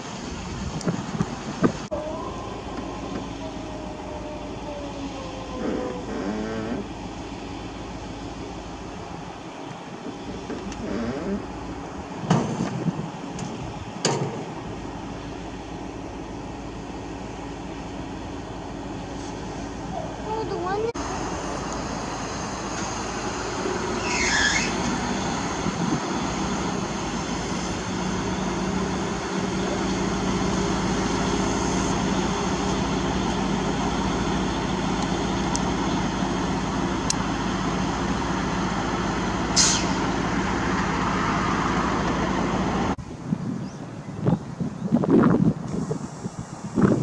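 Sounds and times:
wind noise: 0.0s - 7.4s, 8.8s - 15.5s, 22.4s - 29.2s, 40.5s - 47.0s
diesel engines idling: 0.0s - 43.2s
short hisses: 39.6s - 40.0s.

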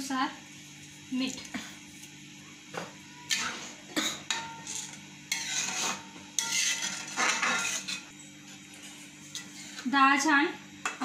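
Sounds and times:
spoon scraping a metal pan: 4.3s - 9.9s.

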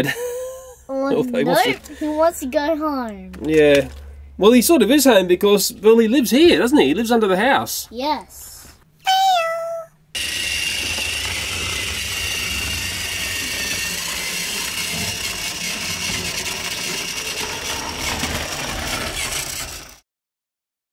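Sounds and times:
toy train motor whirring: 10.2s - 20.0s.

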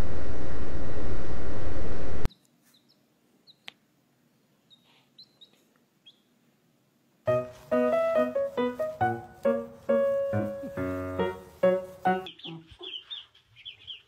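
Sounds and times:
baby chick peeping: 2.3s - 3.8s, 4.6s - 6.4s, 9.4s - 14.0s.

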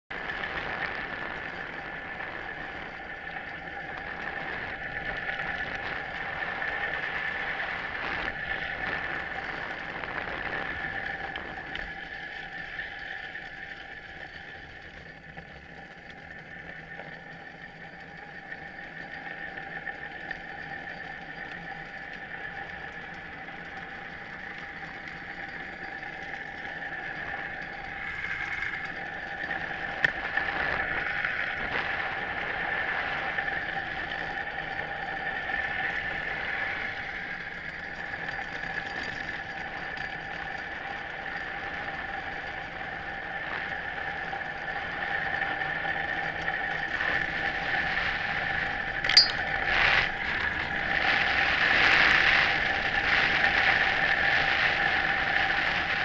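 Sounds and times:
constant whine: 0.1s - 50.8s
click: 49.1s - 49.4s.

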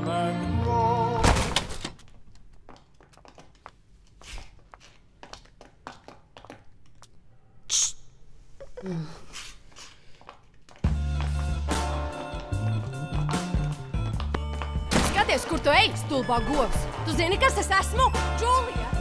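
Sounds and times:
music with singing: 0.0s - 1.2s
high heel footsteps on hard floor: 2.2s - 6.8s, 10.2s - 11.4s.

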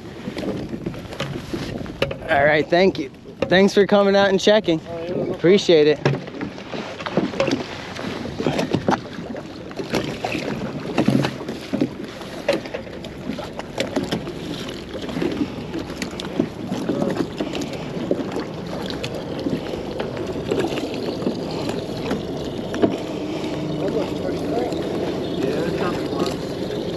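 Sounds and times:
wind on microphone: 0.0s - 3.2s
water lapping against hull: 0.0s - 26.9s.

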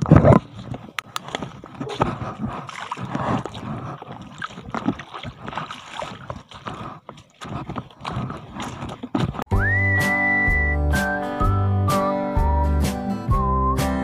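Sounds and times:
footsteps wading through water: 0.0s - 9.5s.

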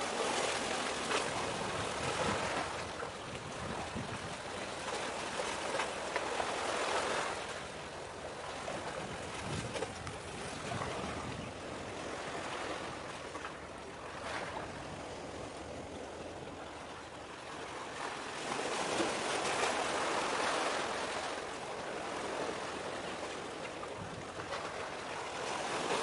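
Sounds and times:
wind on microphone: 0.1s - 5.3s, 8.5s - 13.4s, 23.9s - 24.8s.

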